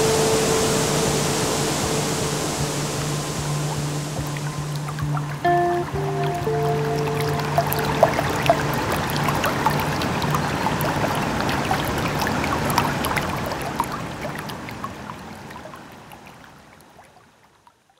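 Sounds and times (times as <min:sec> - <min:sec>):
stream water trickling over rocks: 0:00.0 - 0:17.9.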